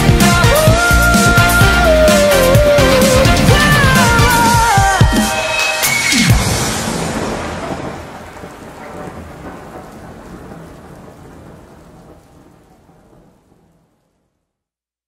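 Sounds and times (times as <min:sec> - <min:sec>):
rain falling: 0:00.0 - 0:14.6
low rumble of thunder: 0:06.3 - 0:14.4.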